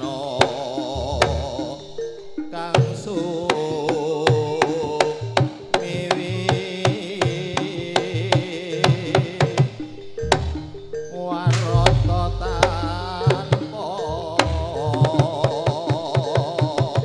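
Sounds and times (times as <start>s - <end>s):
wavering pitched melody: 9.3s - 15.2s
sharp drum strokes: 11.5s - 13.6s.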